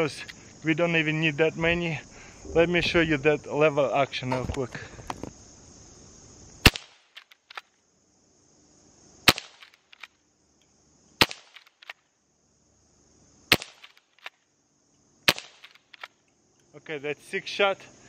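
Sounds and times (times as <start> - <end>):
air rifle shots: 6.6 - 7.6, 9.3 - 10.1, 13.5 - 14.3, 15.3 - 16.1
rifle lever clicks: 15.6 - 16.1.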